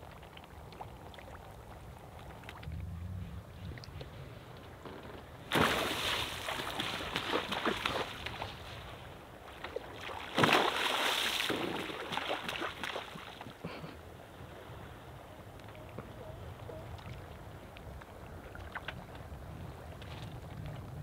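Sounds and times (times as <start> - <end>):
fizzing spray and lapping water: 0.0 - 2.7, 3.4 - 14.8
big splashes on sea surface: 5.5 - 13.5.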